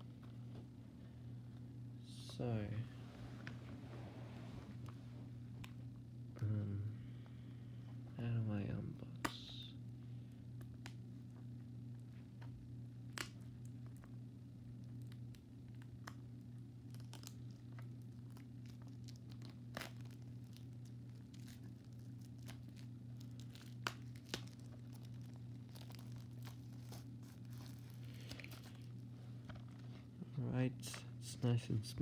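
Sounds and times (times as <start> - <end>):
steady low hum: 0.0 - 32.0
plastic packaging crinkling: 16.8 - 30.0.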